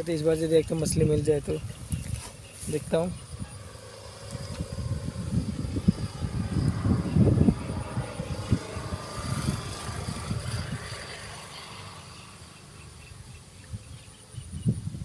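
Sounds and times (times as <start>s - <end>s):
wind buffeting microphone: 0.0s - 12.0s, 13.2s - 15.0s.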